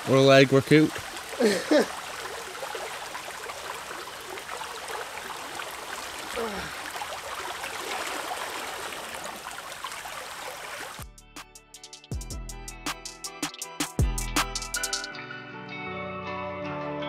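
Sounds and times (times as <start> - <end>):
creek water rushing over stones: 0.0 - 11.0.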